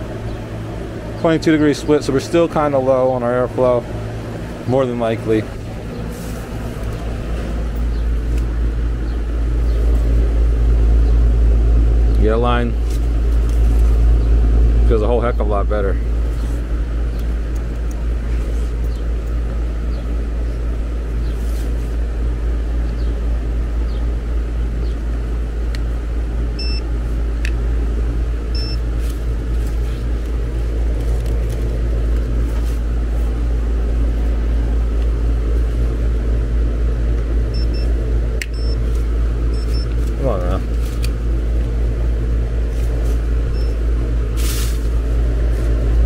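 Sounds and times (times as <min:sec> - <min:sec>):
air conditioner unit humming: 0:00.0 - 0:46.0
short electronic beeps: 0:26.6 - 0:26.8, 0:28.6 - 0:28.8, 0:37.6 - 0:37.9, 0:38.5 - 0:38.8, 0:39.6 - 0:39.9.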